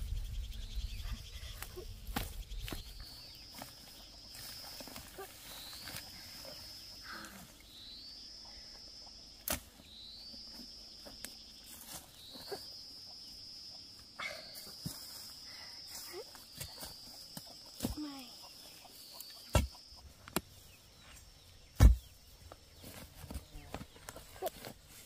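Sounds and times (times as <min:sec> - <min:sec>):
digging tool striking soil: 0:09.4 - 0:09.7, 0:19.5 - 0:20.5, 0:21.7 - 0:22.2.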